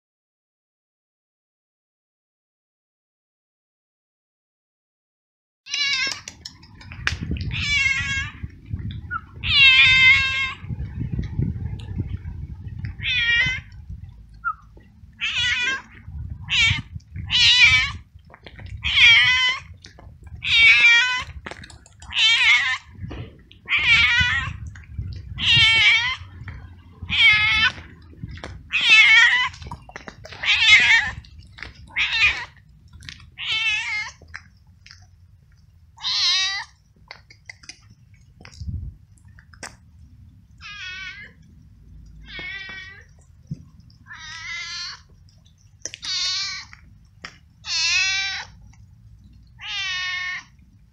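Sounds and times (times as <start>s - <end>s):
cat meowing loudly: 5.7s - 6.4s, 7.3s - 8.5s, 9.1s - 10.7s, 12.9s - 13.8s, 15.2s - 18.1s, 18.7s - 23.0s, 23.6s - 24.7s, 25.3s - 27.9s, 28.7s - 31.3s, 31.9s - 32.6s, 33.4s - 34.2s, 36.0s - 36.8s, 40.6s - 41.4s, 42.2s - 43.2s, 44.1s - 45.1s, 46.0s - 46.8s, 47.6s - 48.6s, 49.6s - 50.5s.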